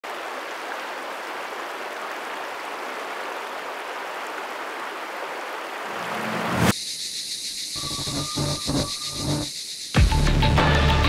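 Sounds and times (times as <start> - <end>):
stream rushing over rocks: 0.0 - 6.7.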